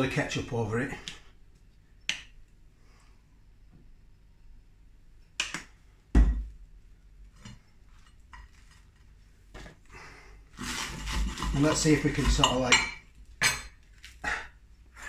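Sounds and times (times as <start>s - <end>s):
bottle thumping on worktop: 6.1s - 6.5s.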